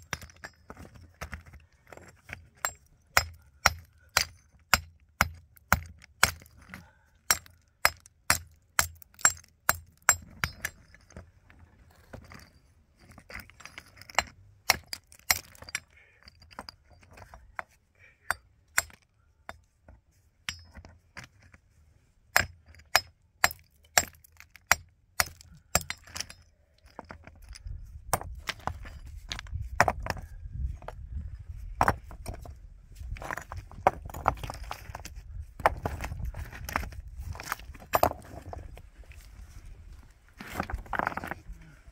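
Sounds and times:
hammer striking stone: 2.6s - 6.6s, 7.3s - 10.8s, 22.4s - 26.4s.

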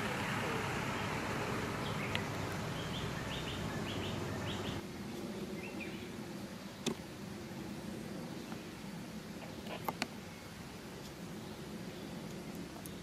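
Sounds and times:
small bird chirping: 1.8s - 4.8s.

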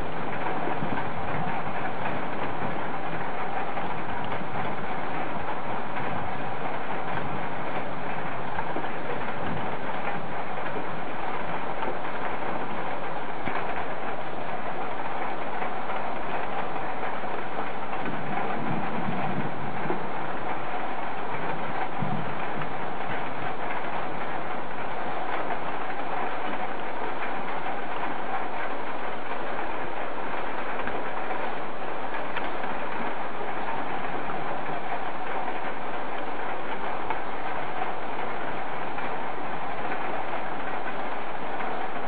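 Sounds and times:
thunderstorm rushing noise: 18.0s - 20.4s, 21.4s - 22.7s.

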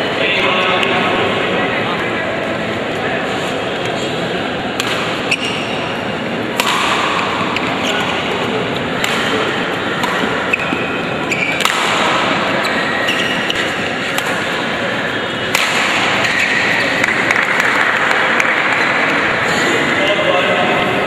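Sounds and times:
murmur of spectators: 0.0s - 21.0s
racket hitting shuttlecock: 4.8s - 5.8s, 6.5s - 14.7s, 15.4s - 19.3s
shoe squeaks: 5.2s - 5.9s, 9.2s - 11.7s, 12.5s - 13.8s.

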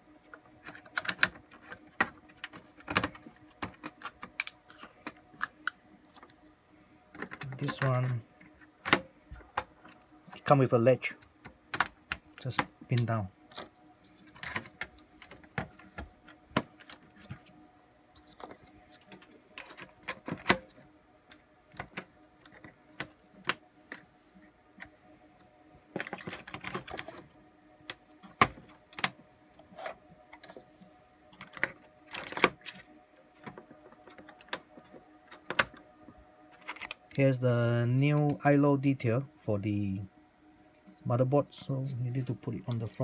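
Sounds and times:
faint steady hum: 0.0s - 43.0s
clicks and knocks of parts handled: 7.1s - 10.5s, 36.5s - 37.2s.

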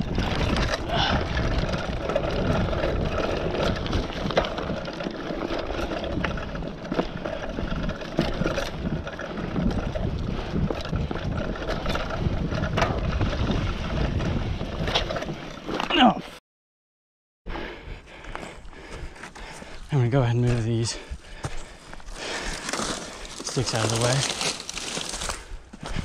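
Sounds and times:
wind buffeting microphone: 0.0s - 15.4s
bike tyres rumbling on dirt: 0.0s - 16.2s, 18.1s - 26.0s
bike rattling: 0.0s - 16.4s, 18.1s - 26.0s.

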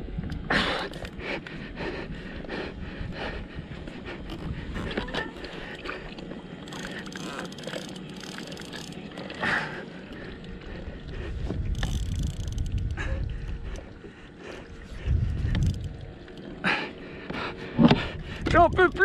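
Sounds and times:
water slapping hull: 0.4s - 19.0s
person breathing hard: 0.5s - 6.2s, 12.9s - 15.8s, 16.6s - 18.5s.

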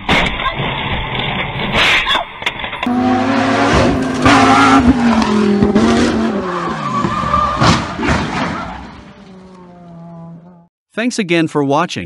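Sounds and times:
car engine running hard: 2.8s - 7.2s.

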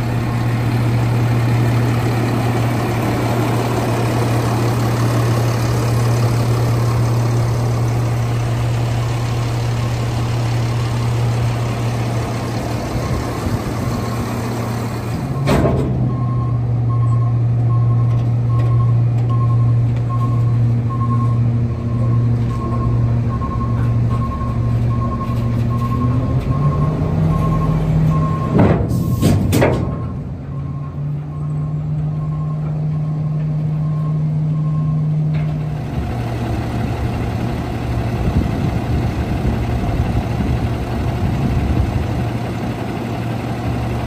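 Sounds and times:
garbage truck diesel engine: 0.0s - 44.0s
alarm beeping: 15.3s - 29.3s, 29.9s - 35.2s.

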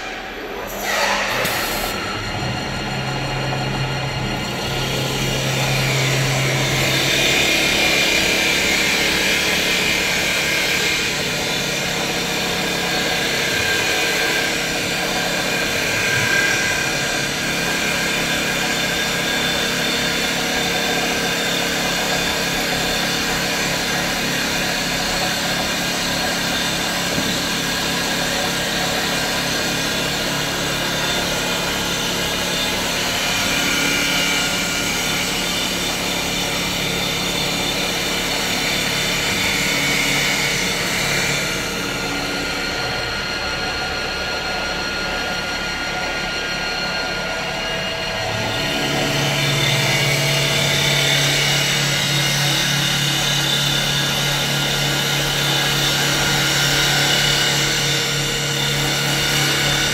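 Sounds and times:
steady tones: 0.0s - 10.1s
tool cutting spinning wood: 0.0s - 59.9s
wood lathe machine noise: 0.0s - 59.9s.

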